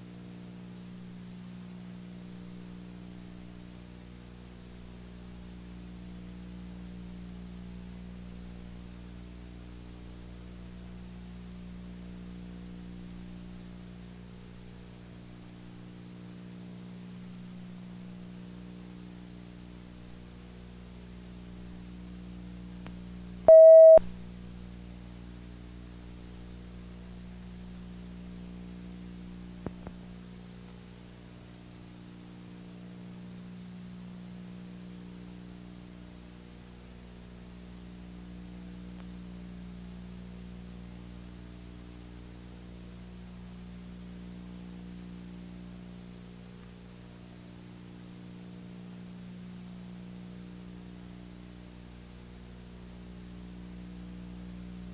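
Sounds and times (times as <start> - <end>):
short loud beep: 23.5 - 24.0.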